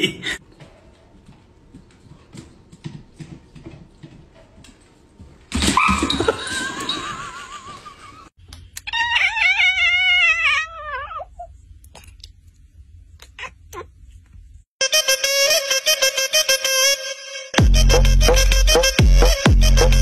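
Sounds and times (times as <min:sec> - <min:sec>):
cat meowing: 0:08.9 - 0:11.5.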